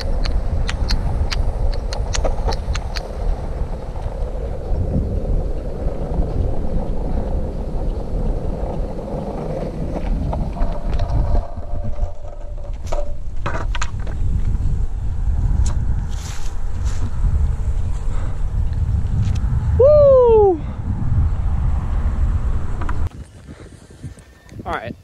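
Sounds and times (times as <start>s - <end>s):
sharp clicks: 0.0s - 3.1s
wheels rolling on asphalt: 0.0s - 19.8s, 20.8s - 25.0s
wind rushing over microphone: 0.0s - 25.0s.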